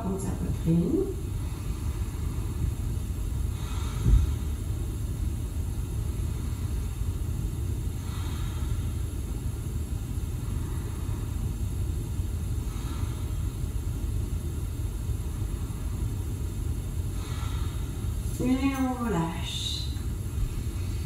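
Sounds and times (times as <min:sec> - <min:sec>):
low background rumble: 0:00.0 - 0:21.0.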